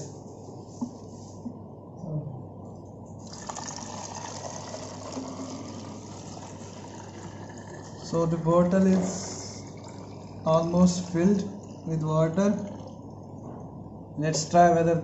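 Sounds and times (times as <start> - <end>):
water filling a bottle: 3.2 - 13.3.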